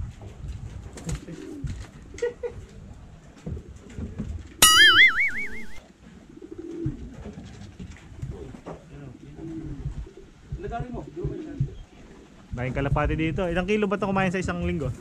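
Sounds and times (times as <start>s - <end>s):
wobbling comic tone effect: 4.6s - 5.8s
pigeons cooing: 6.2s - 12.4s.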